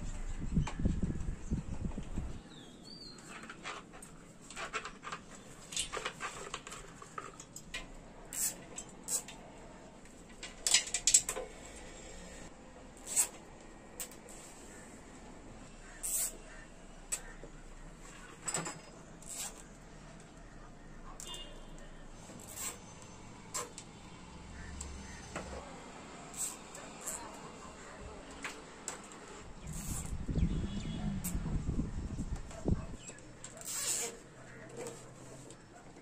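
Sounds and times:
hands handling wires: 3.1 - 9.4.

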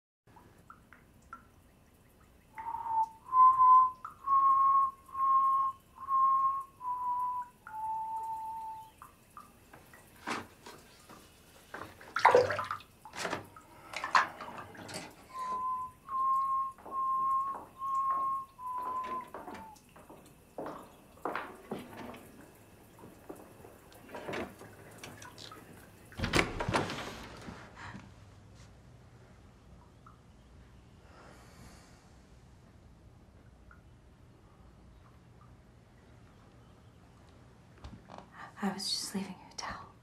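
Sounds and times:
man whistling a tune: 2.6 - 9.0, 15.3 - 19.8
bath water splashing: 9.2 - 26.4.

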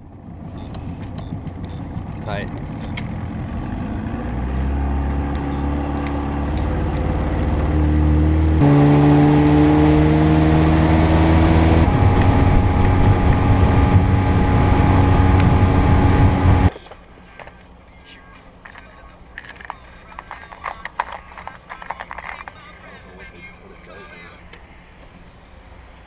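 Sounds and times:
outboard motor running: 0.0 - 7.9, 11.6 - 16.7
wind: 0.0 - 26.0.

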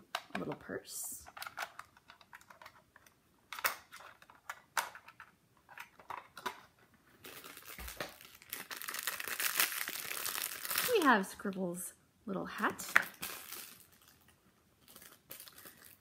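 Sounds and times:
plastic packaging clicks and crackles: 1.2 - 11.1, 12.8 - 16.0
plastic wrapping crinkling: 5.7 - 11.5, 12.8 - 16.0.

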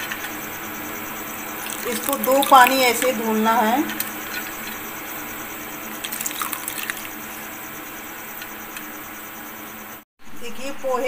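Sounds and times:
water dripping into bowl: 1.6 - 3.3, 6.0 - 7.2.

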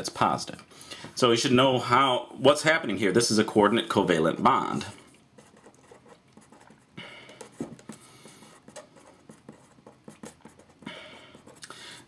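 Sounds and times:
marker pen scratching on paper: 5.4 - 11.6.

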